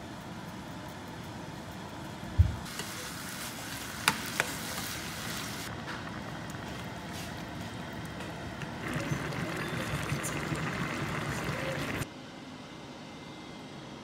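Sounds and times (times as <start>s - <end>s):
food sizzling in a saucepan: 2.7s - 5.7s, 8.8s - 12.0s.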